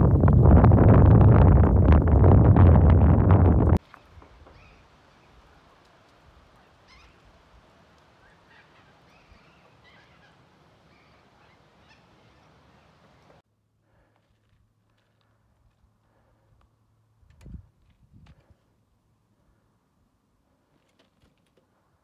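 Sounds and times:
wind buffeting microphone: 0:00.0 - 0:03.8
faint bird calls: 0:08.2 - 0:13.4.

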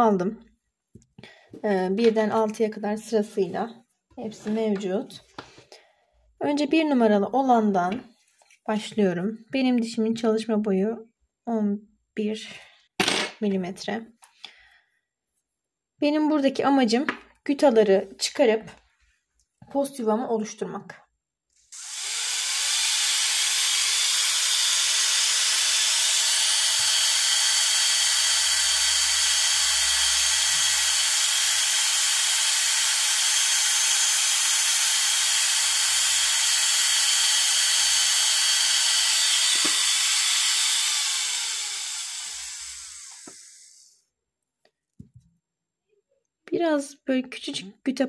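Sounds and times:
dental drill whirring: 0:21.6 - 0:44.0.

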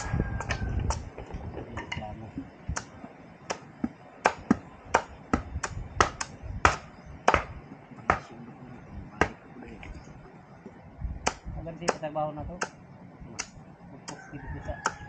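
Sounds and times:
knife chopping bamboo: 0:02.7 - 0:02.9, 0:03.5 - 0:08.3.

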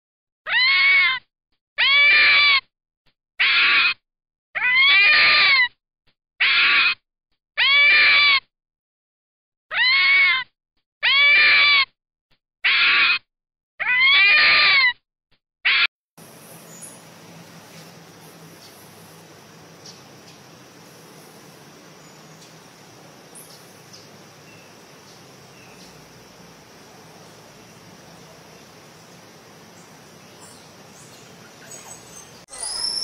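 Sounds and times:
fox calling: 0:12.6 - 0:13.2, 0:30.4 - 0:33.0.

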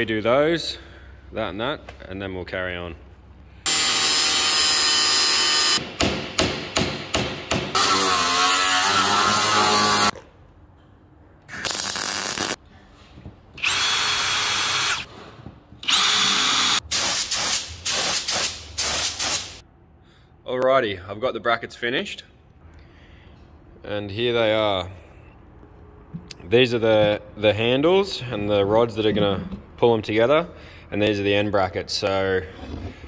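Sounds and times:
angle grinder cutting steel: 0:07.8 - 0:10.1
welding: 0:11.5 - 0:12.6
paint spray gun hissing: 0:16.9 - 0:19.6.

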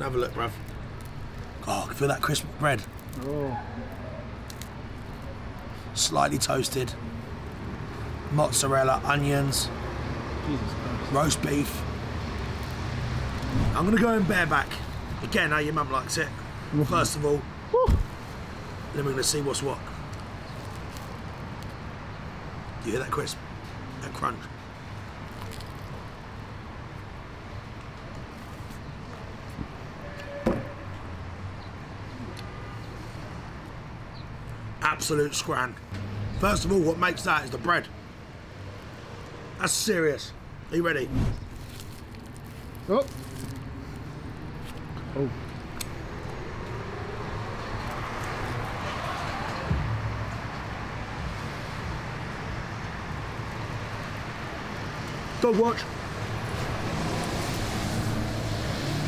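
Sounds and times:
road traffic passing: 0:00.0 - 0:59.0
low thump: 0:41.1 - 0:41.5.

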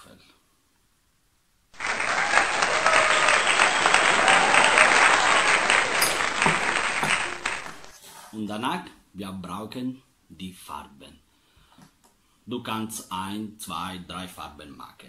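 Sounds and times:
crowd applause: 0:01.8 - 0:07.9.

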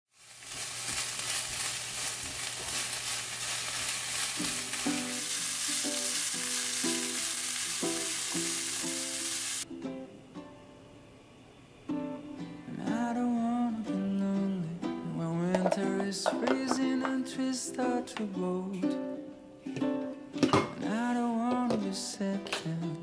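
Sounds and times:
meat sizzling in a frying pan: 0:00.1 - 0:09.6
spatula stirring: 0:00.2 - 0:06.3
soft plucked-string music: 0:04.4 - 0:11.2, 0:11.8 - 0:23.0.

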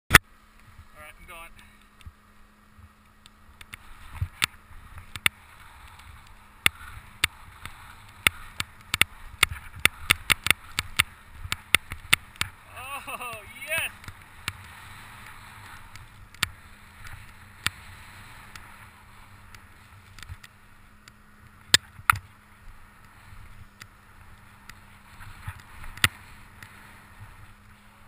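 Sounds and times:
skis swishing through powder snow: 0:03.8 - 0:21.0, 0:22.4 - 0:28.0.

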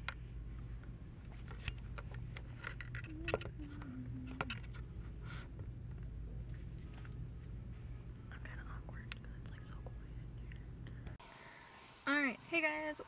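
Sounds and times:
steady low hum: 0:00.0 - 0:13.0
camera handling clicks and rattles: 0:01.3 - 0:03.6.

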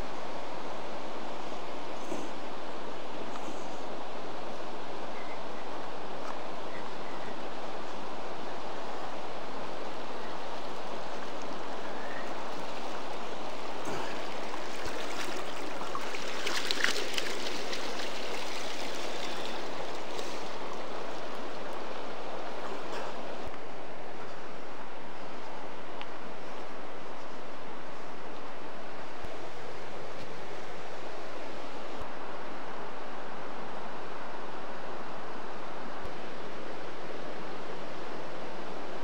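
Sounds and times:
river water rushing: 0:05.8 - 0:23.5.

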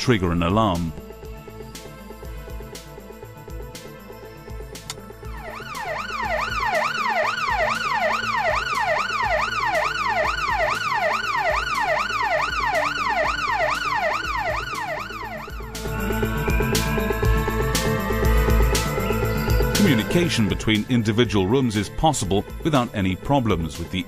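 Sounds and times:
alarm siren wailing: 0:05.2 - 0:20.7.

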